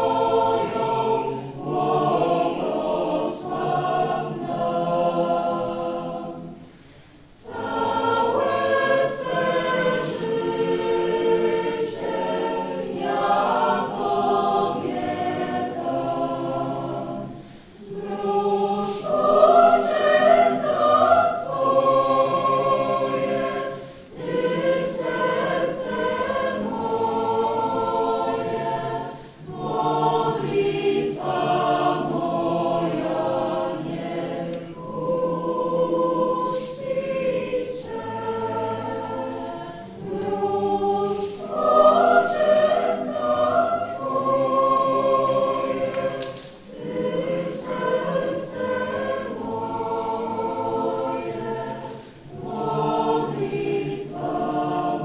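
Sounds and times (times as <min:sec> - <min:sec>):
choir singing: 0:00.0 - 0:55.0.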